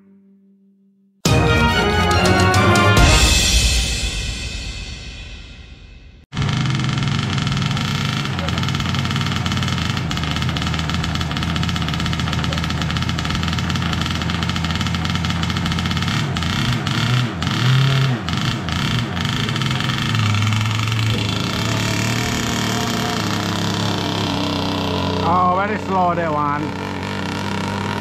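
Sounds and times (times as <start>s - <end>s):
small gasoline engine revving: 6.3s - 28.0s.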